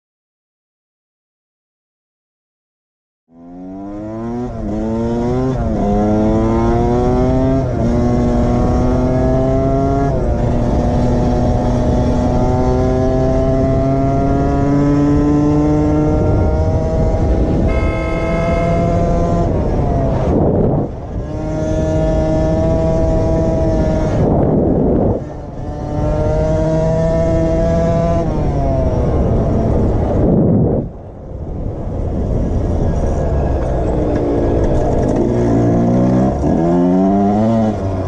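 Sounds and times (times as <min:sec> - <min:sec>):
dirt bike engine accelerating: 0:03.4 - 0:28.2.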